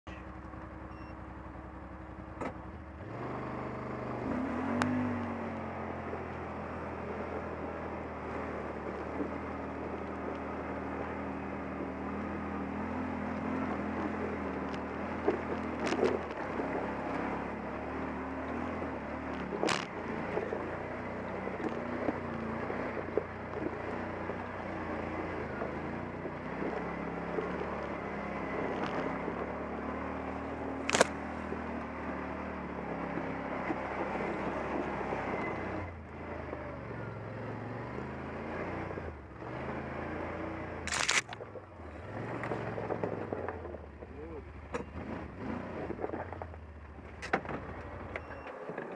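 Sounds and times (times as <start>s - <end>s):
off-road vehicle engine running: 0.0s - 48.9s
sharp knocks over rough trail: 6.0s - 35.8s, 40.6s - 48.9s.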